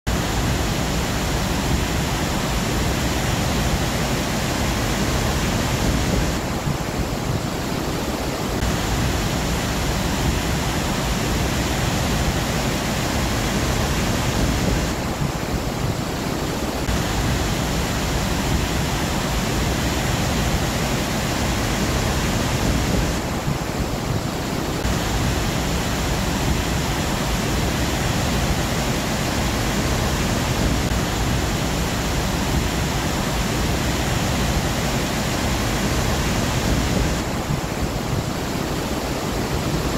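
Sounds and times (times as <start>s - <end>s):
waterfall rushing: 0.1s - 39.9s.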